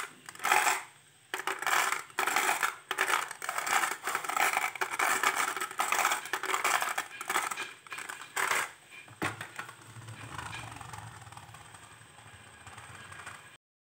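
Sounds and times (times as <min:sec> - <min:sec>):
marbles rattling in plastic truck: 0:00.0 - 0:13.6.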